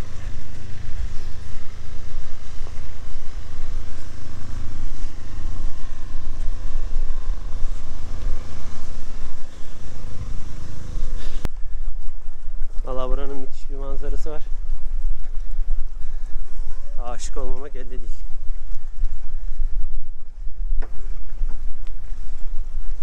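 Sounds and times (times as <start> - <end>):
low rumble with motor hum: 0.0 - 23.0.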